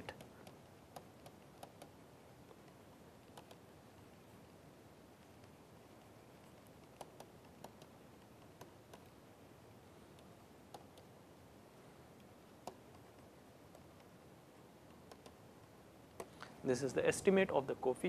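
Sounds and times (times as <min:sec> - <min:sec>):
stylus tapping tablet screen: 0:00.0 - 0:16.6
low room hiss: 0:00.0 - 0:18.0.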